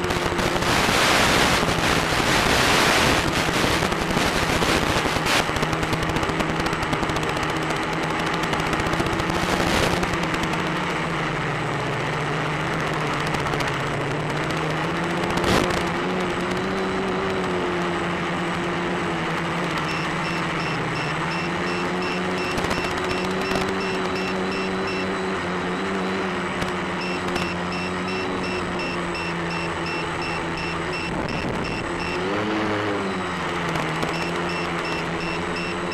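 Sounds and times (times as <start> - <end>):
crackling radio static: 0.0 - 35.9
drone motors and propellers droning: 0.0 - 35.9
high double beep: 19.8 - 26.3, 26.9 - 33.4, 34.1 - 35.9.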